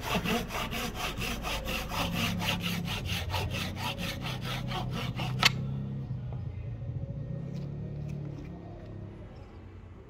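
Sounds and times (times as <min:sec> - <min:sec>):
hand saw cutting wood: 0:00.0 - 0:05.7.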